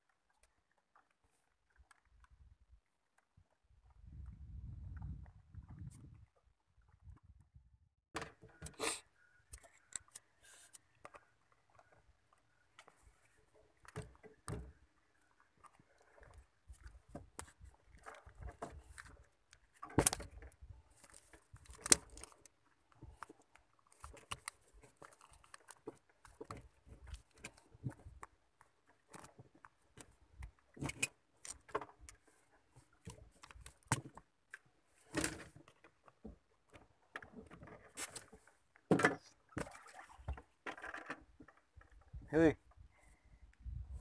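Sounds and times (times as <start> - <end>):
small clicks and rattles of fish unhooking: 0.0 - 2.4, 9.4 - 38.9, 40.3 - 42.1.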